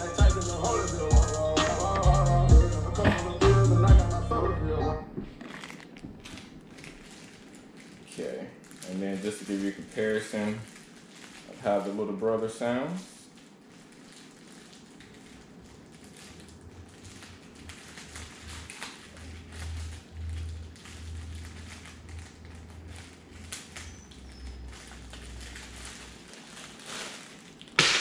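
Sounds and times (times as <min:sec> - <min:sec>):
music with deep bass: 0:00.0 - 0:05.1
faint clicks and crackles: 0:05.3 - 0:27.9.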